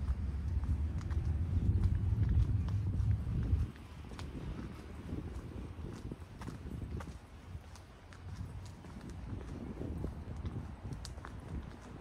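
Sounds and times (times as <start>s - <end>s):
low rumble: 0.0s - 5.4s
horse hooves clip-clopping: 0.0s - 12.0s.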